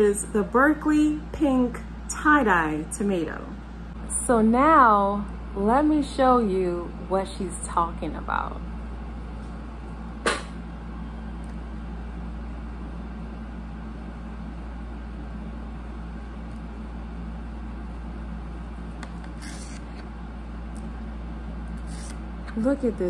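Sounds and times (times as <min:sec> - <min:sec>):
low room hum: 0:00.0 - 0:23.0
knife slicing tomato: 0:19.0 - 0:20.1, 0:21.8 - 0:22.2.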